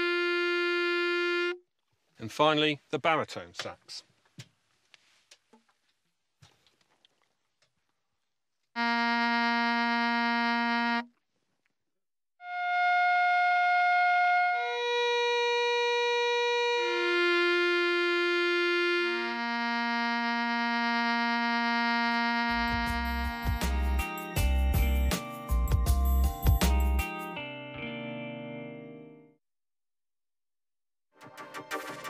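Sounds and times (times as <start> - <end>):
saxophone holding low note: 0.0 - 1.6, 12.4 - 24.1.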